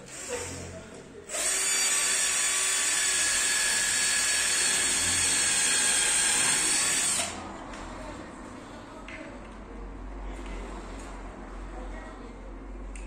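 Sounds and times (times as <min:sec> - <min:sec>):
cordless drill drilling into panel: 0:01.3 - 0:07.4.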